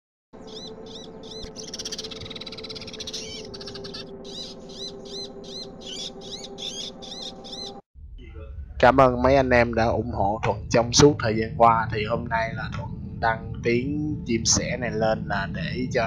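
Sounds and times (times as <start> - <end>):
sparrows chirping: 0.4 - 7.8
steady low hum: 0.4 - 16.0.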